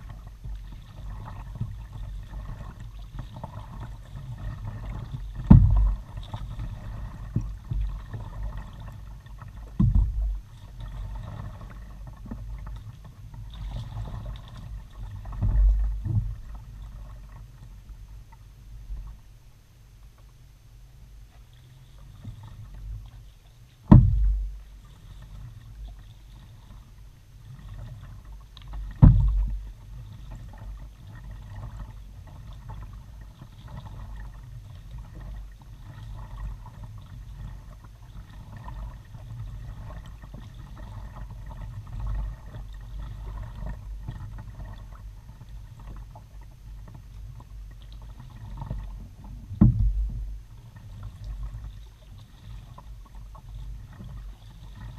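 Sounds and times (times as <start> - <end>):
paddle splashes and drips: 0.0 - 54.9
steady low rumble: 3.7 - 27.5, 28.5 - 31.3, 42.6 - 52.0
sharp knocks on kayak: 5.4 - 6.0, 9.8 - 10.4, 23.8 - 24.6, 28.9 - 29.6, 49.5 - 50.4.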